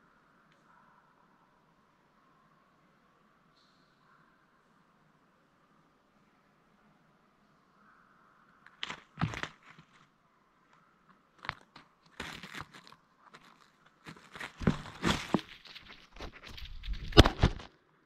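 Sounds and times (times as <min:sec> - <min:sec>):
dry leaves crunching: 0:08.8 - 0:10.0, 0:12.2 - 0:17.7
camera scraping through leaves: 0:12.2 - 0:17.7.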